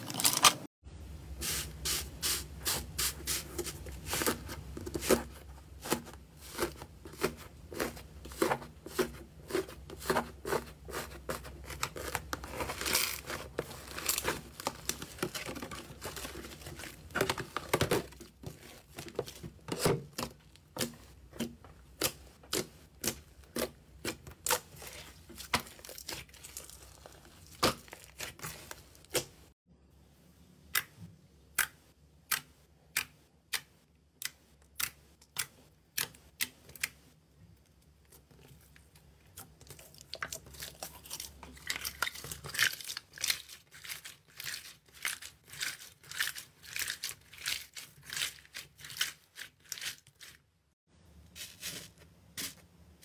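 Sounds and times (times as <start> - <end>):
crunchy slime tearing: 11.7 - 19.4, 22.0 - 29.3.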